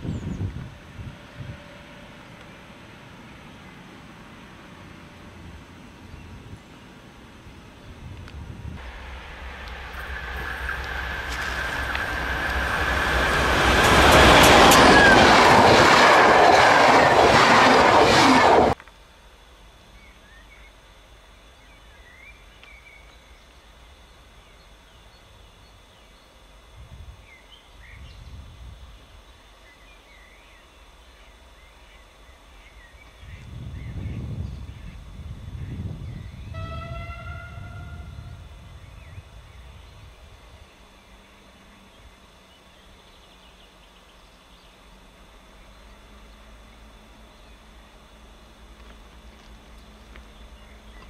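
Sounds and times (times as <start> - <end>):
train wheel and rail noise: 0.0 - 18.9, 32.3 - 43.8, 44.9 - 51.0
distant low rumble: 7.5 - 18.8.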